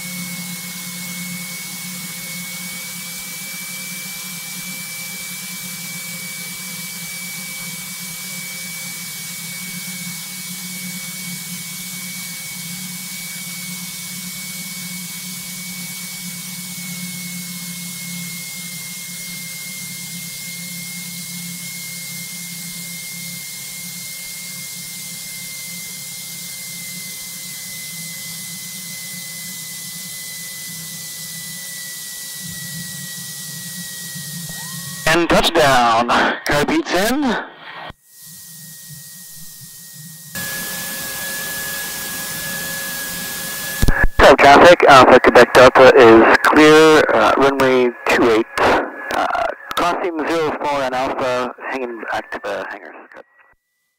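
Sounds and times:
thin whine dropping in pitch: 0:32.4 - 0:37.0.

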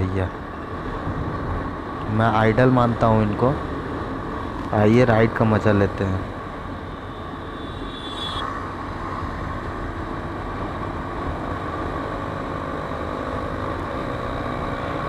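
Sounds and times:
wind and road rush: 0:00.3 - 0:15.0.

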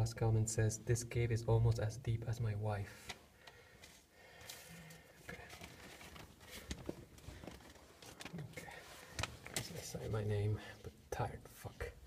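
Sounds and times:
person shifting position: 0:03.8 - 0:09.9
paper rustling: 0:03.8 - 0:10.2.

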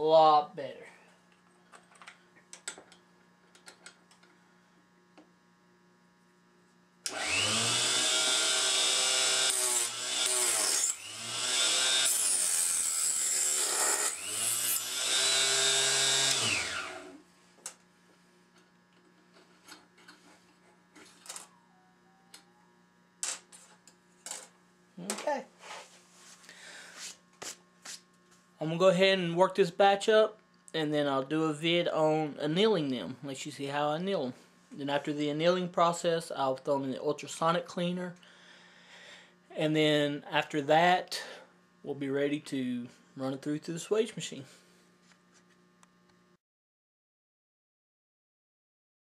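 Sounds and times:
mains hum: 0:00.0 - 0:07.4, 0:16.5 - 0:46.4
electric saw cutting metal: 0:07.0 - 0:17.3.

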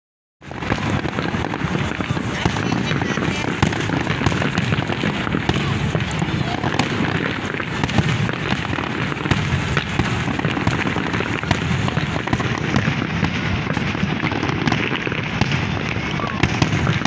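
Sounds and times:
fireworks crackling and banging: 0:00.4 - 0:17.0.

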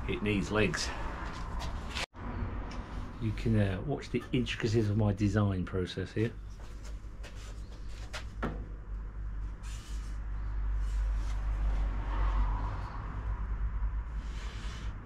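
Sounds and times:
wood scraping: 0:00.8 - 0:02.1.

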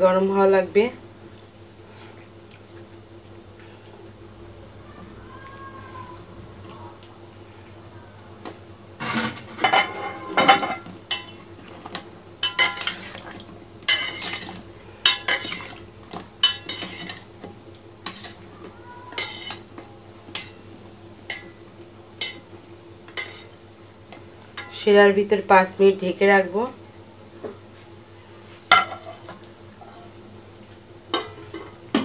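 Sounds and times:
metal spoon clinking on pot: 0:12.4 - 0:13.1, 0:13.9 - 0:15.7, 0:19.2 - 0:19.6.

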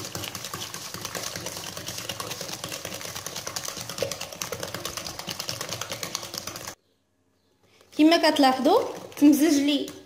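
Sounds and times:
whisk clicking against glass bowl: 0:00.0 - 0:06.8.

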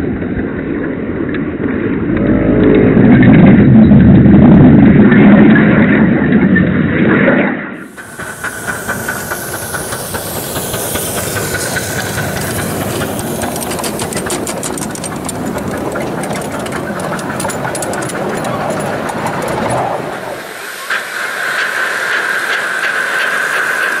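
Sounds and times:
steam locomotive hissing: 0:07.8 - 0:24.0.

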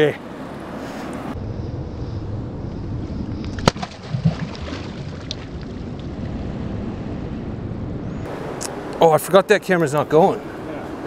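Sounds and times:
wind rumbling on microphone: 0:00.4 - 0:09.0
small water splashes: 0:03.6 - 0:06.0.

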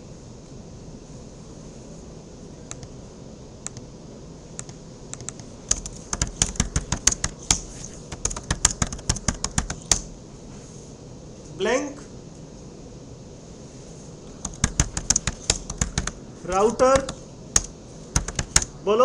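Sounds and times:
computer keyboard typing: 0:04.6 - 0:10.1, 0:14.3 - 0:18.7.

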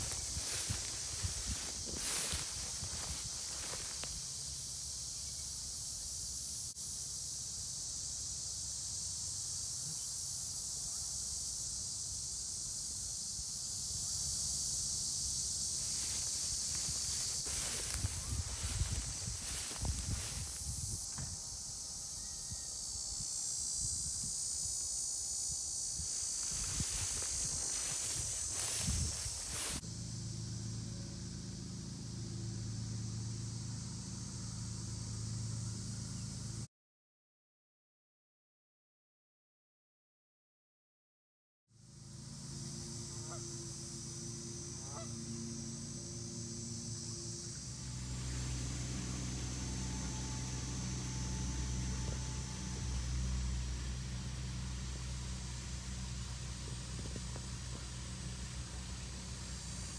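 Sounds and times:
crickets trilling: 0:00.0 - 0:36.7, 0:41.8 - 0:59.9
steady high-pitched hiss: 0:00.0 - 0:36.7, 0:41.8 - 0:59.9
low hum: 0:44.6 - 0:59.9.

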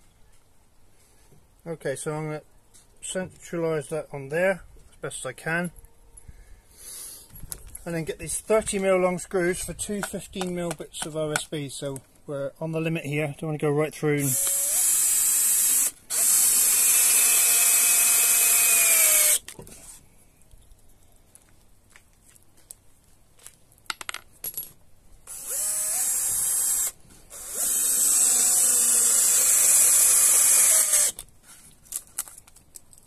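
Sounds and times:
power drill driving screws: 0:14.2 - 0:19.4, 0:25.3 - 0:31.2.

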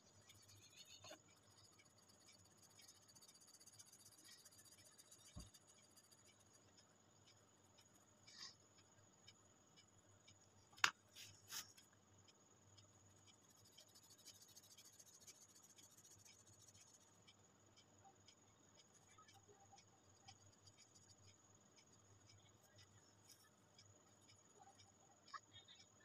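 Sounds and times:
pencil scratching on paper: 0:00.0 - 0:06.8, 0:13.3 - 0:17.2, 0:18.8 - 0:23.6
soft ticks: 0:00.0 - 0:26.0.

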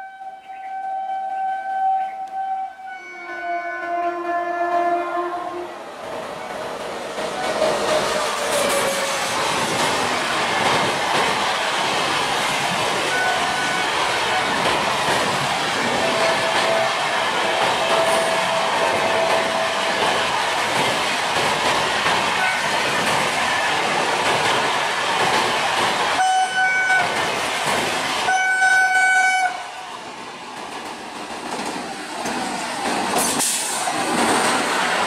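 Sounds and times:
train horn blasts: 0:00.0 - 0:05.8, 0:13.1 - 0:14.5, 0:16.0 - 0:19.8, 0:26.2 - 0:27.1, 0:28.3 - 0:29.7
train wheels clickety-clack: 0:06.0 - 0:35.0.

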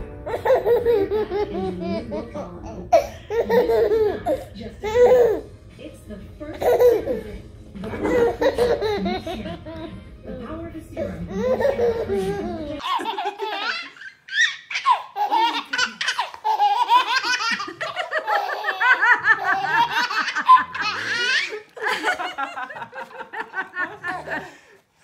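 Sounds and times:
baby laughing: 0:00.2 - 0:05.5, 0:06.5 - 0:09.9, 0:11.0 - 0:22.3.

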